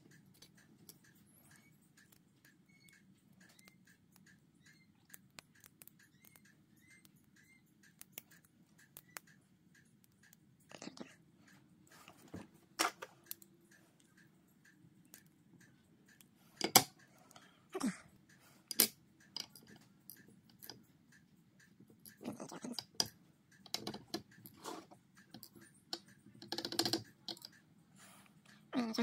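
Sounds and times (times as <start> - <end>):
small metal clicks and taps: 0.0 - 17.5, 18.3 - 27.6.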